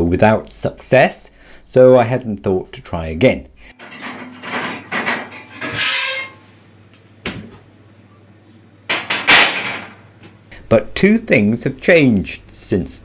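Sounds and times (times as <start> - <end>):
metallic clatter: 3.7 - 6.4, 8.9 - 10.1
steel sheet scraping on metal slats: 3.7 - 6.5.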